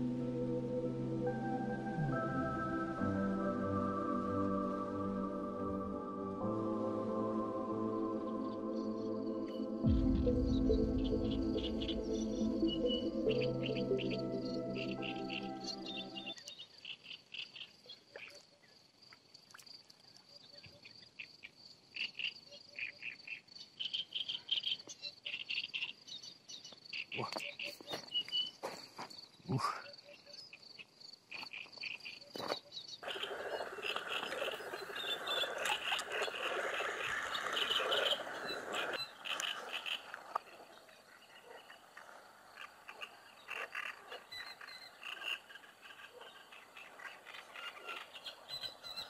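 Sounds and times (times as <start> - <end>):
insect chirping high-pitched: 0.0 - 17.9
bird calls: 8.9 - 18.7, 20.4 - 49.0.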